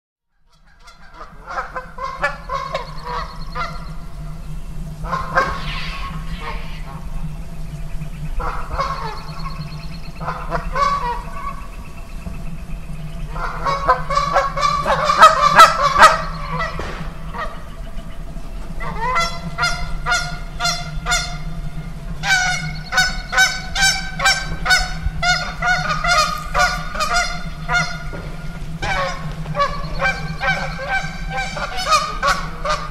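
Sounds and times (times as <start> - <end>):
geese honking: 0.5 - 7.2, 8.4 - 11.8, 13.2 - 32.9.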